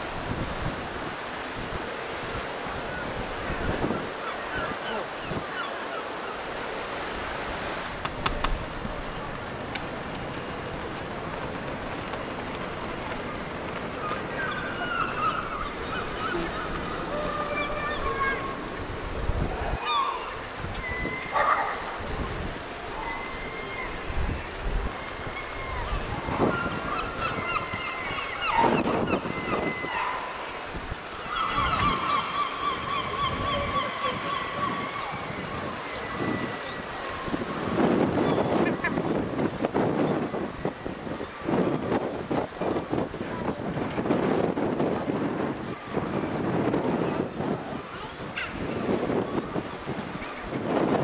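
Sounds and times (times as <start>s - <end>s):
rushing water: 0.0s - 51.0s
wind: 0.0s - 51.0s
faint high wavering calls: 14.2s - 18.8s, 19.8s - 21.5s, 22.9s - 37.4s.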